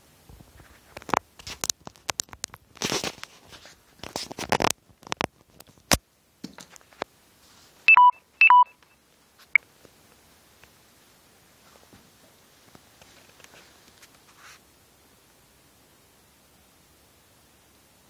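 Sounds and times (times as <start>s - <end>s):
clicks scrapes and rustling: 0.4s - 7.1s
short electronic beeps: 7.9s - 9.0s.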